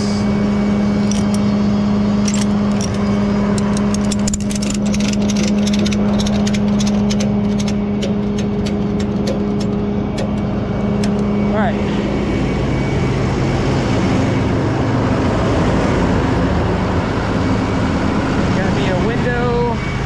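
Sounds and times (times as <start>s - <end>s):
diesel engine idling: 0.0s - 20.0s
sharp clicks and ticks: 2.2s - 10.4s, 11.0s - 11.2s.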